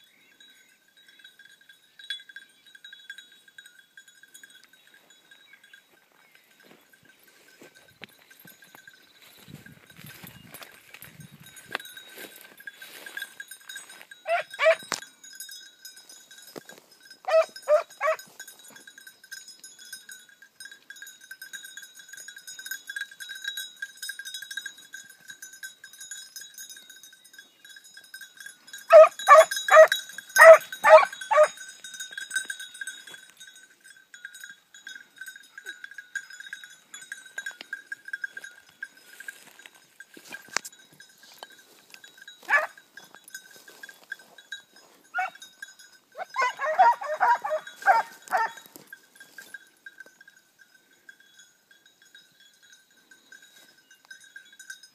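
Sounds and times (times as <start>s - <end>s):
hunting bell ringing: 0.0s - 54.9s
hounds baying: 13.8s - 15.0s, 17.2s - 18.8s, 28.8s - 31.6s, 42.4s - 42.8s, 45.1s - 45.4s, 46.1s - 48.9s.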